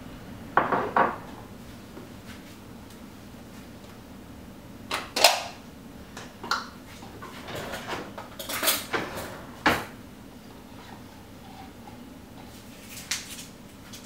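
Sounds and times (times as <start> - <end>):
utensils clattering against metal bowl: 7.2 - 9.8.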